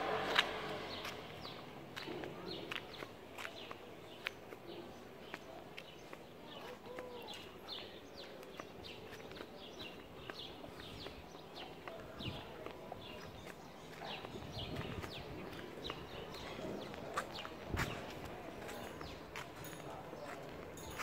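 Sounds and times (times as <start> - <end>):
footsteps on pavement: 0.1 - 21.0
small birds chirping: 0.9 - 21.0.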